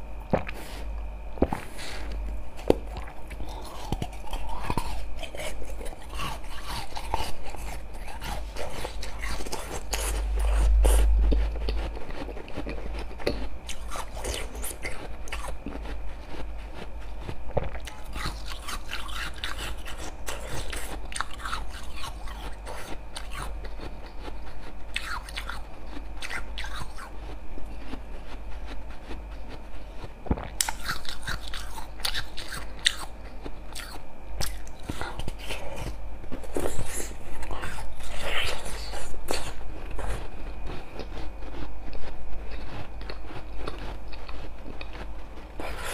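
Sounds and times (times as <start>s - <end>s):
ice being chewed with crunches: 0.3s - 45.9s.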